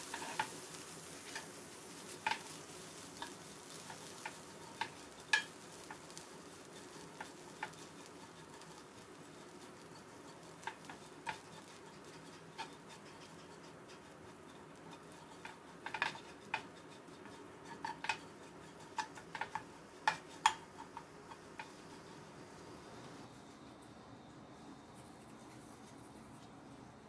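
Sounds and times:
spatula clicking against frying pan: 0:03.2 - 0:06.2, 0:15.1 - 0:21.8.

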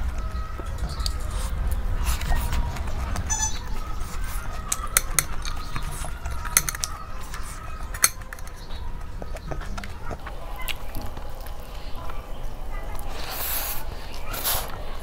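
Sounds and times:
chewing: 0:00.0 - 0:15.0
fingers scraping food on dishes: 0:00.8 - 0:10.3
nails clicking on steel plate: 0:04.7 - 0:07.0.

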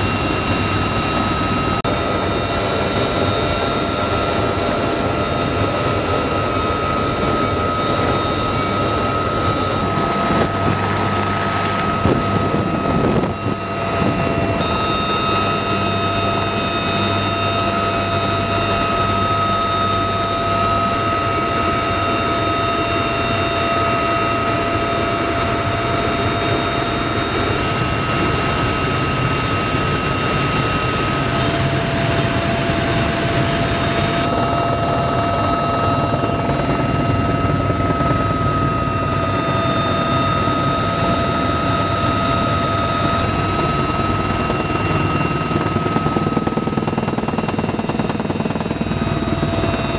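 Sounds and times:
helicopter rotor and engine rumble: 0:00.0 - 0:49.9
high turbine whine: 0:00.0 - 0:49.9.

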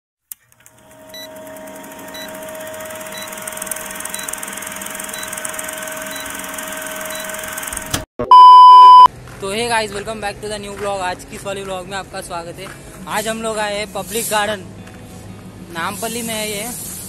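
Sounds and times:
film projector rattling whir: 0:00.3 - 0:08.0.

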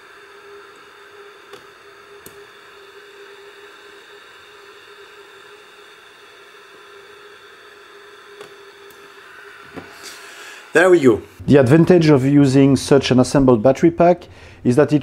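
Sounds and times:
steady hiss and hum: 0:00.0 - 0:15.0
spot welder clicks: 0:01.5 - 0:02.4, 0:08.4 - 0:09.0.

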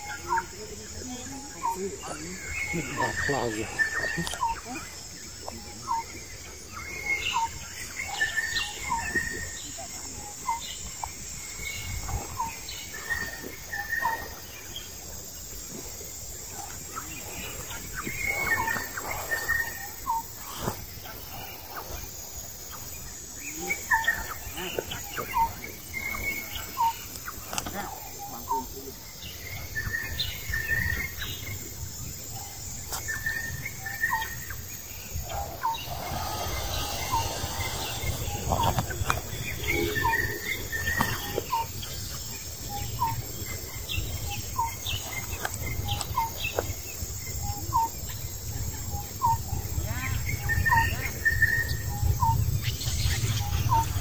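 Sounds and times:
bird chirping: 0:00.0 - 0:15.0, 0:22.7 - 0:48.3, 0:48.9 - 0:54.0
higher twittering chirps: 0:00.0 - 0:54.0
steady low rumble: 0:33.6 - 0:40.9.

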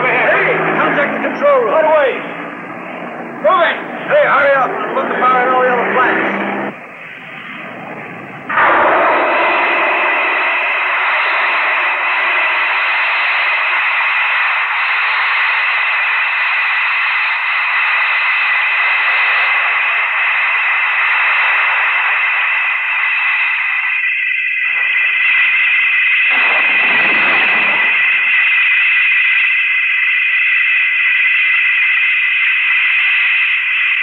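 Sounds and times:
faint high whine: 0:00.0 - 0:34.0
loud steady hissing: 0:06.6 - 0:29.8.

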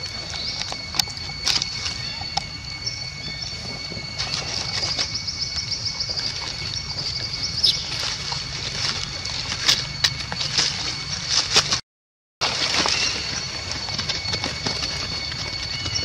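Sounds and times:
rapid high chirping: 0:00.0 - 0:11.3
steady high-pitched whine: 0:00.0 - 0:11.8, 0:12.4 - 0:16.0.

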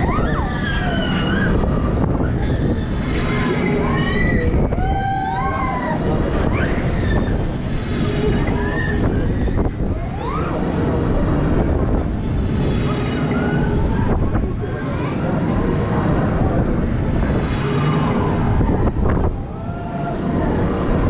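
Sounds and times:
riders shrieking: 0:00.0 - 0:10.6
wind buffeting microphone: 0:00.0 - 0:21.0.

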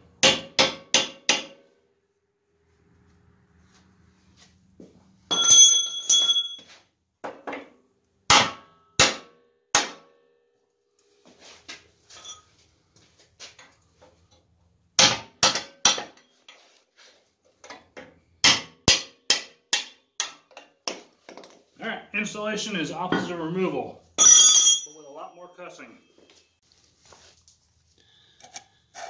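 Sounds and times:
hammer striking steel tool: 0:00.2 - 0:01.6, 0:18.4 - 0:20.7.

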